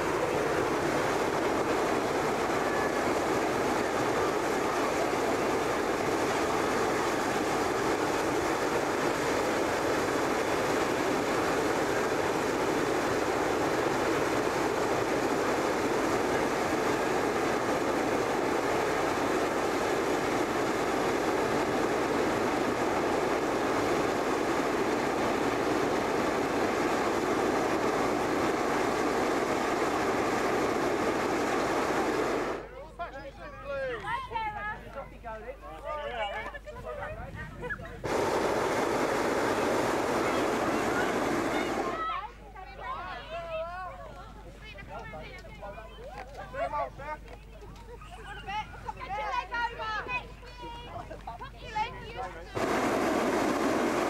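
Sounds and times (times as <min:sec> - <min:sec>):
propane burner roaring: 0:00.0 - 0:32.7, 0:38.0 - 0:42.2, 0:52.5 - 0:54.0.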